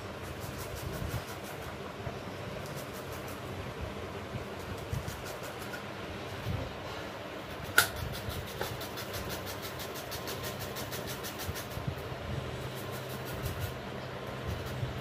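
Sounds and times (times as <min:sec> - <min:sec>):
metal grater rasping vegetable: 0:00.0 - 0:01.8, 0:02.6 - 0:03.5, 0:04.5 - 0:06.6, 0:07.4 - 0:12.0, 0:12.6 - 0:13.8.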